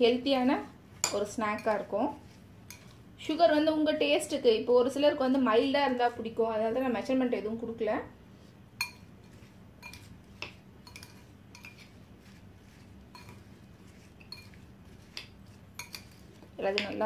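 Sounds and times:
metal spoon clinking on glass bowl: 0:01.0 - 0:01.8, 0:08.8 - 0:09.1, 0:09.8 - 0:10.1, 0:10.8 - 0:11.9, 0:13.1 - 0:13.5, 0:14.2 - 0:17.0.

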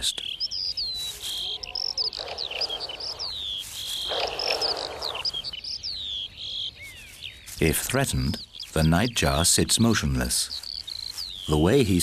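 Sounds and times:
small birds chirping: 0:00.0 - 0:12.0
bird hissing: 0:02.1 - 0:05.5.

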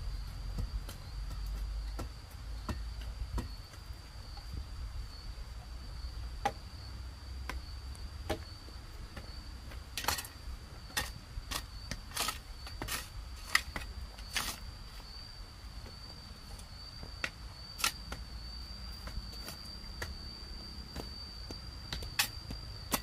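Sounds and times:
hoe striking stony soil: 0:00.2 - 0:04.5, 0:07.5 - 0:14.7, 0:16.5 - 0:18.3, 0:20.9 - 0:23.0
high-pitched insect drone: 0:13.6 - 0:23.0.

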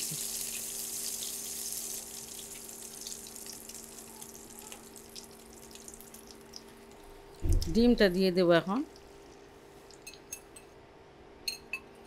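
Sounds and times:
butter sizzling in a pan: 0:00.0 - 0:06.9
faint steady hum: 0:00.0 - 0:12.0.

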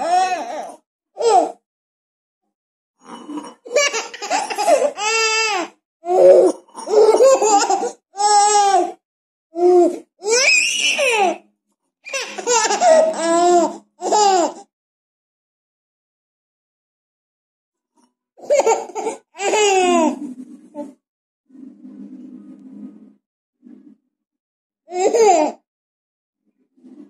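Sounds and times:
baby laughing: 0:03.7 - 0:08.9, 0:12.1 - 0:14.7, 0:18.4 - 0:20.2, 0:24.9 - 0:25.6.

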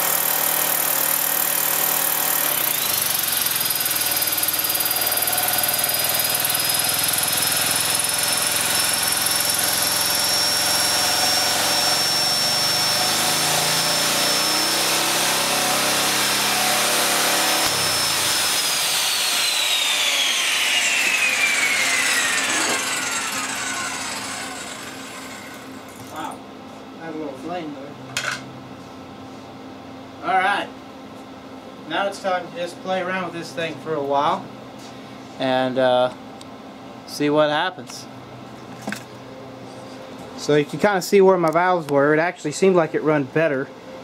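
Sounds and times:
generator engine running: 0:00.0 - 0:14.7, 0:15.4 - 0:26.2
power tool motor whining: 0:00.0 - 0:26.2.

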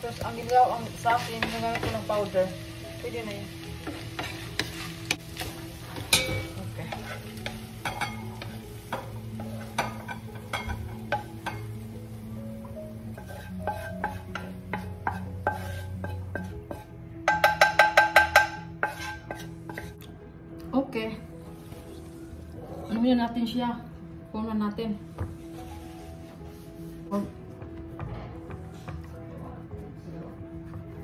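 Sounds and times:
sizzling: 0:00.0 - 0:20.2, 0:21.0 - 0:23.6
spatula scraping frying pan: 0:03.8 - 0:11.7, 0:12.9 - 0:20.0.

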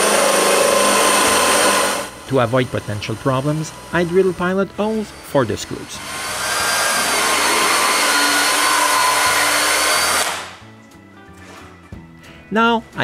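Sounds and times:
electric drill whining: 0:00.0 - 0:10.6
faint background music: 0:02.2 - 0:06.2, 0:10.5 - 0:13.0.

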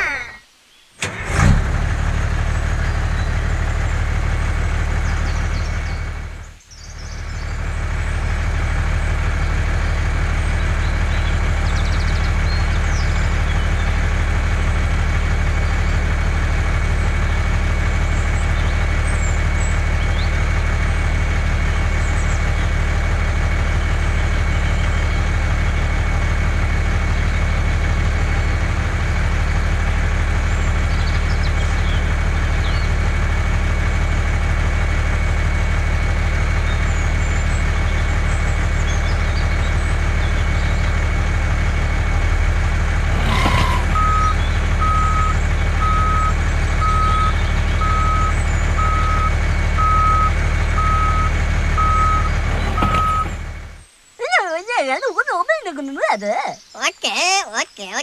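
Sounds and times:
diesel truck engine running: 0:01.0 - 0:58.0
reversing beeper: 0:43.3 - 0:53.5.

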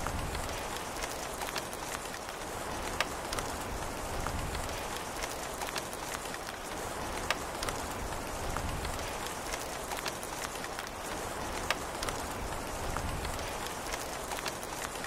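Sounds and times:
steady rain falling: 0:00.0 - 0:15.0.

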